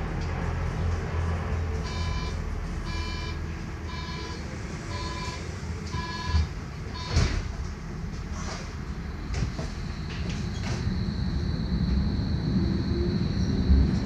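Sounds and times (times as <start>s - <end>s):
low rumble inside tram: 0.0s - 14.0s
door warning beeps: 1.9s - 7.4s
doors shutting with a knock: 6.4s - 7.6s.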